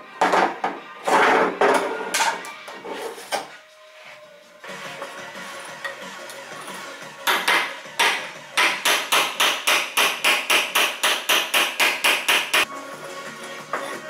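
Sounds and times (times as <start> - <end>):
hammer striking metal punch: 7.2 - 12.6.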